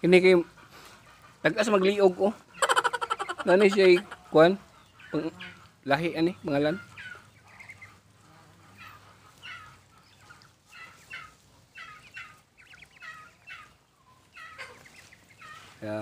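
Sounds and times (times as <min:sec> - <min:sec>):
chickens calling: 0:00.0 - 0:16.0.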